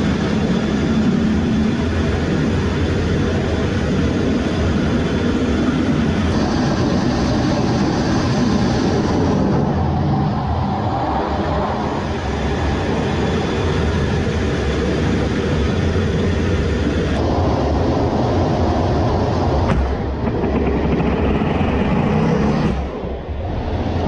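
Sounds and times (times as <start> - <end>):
jet engines rumbling at high power: 0.0 - 24.0.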